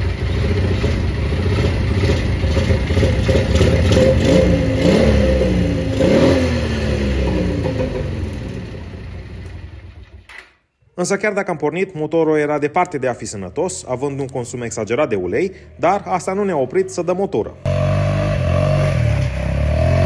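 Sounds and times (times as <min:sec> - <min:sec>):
atv engine revving: 0:00.0 - 0:10.2, 0:17.6 - 0:20.0.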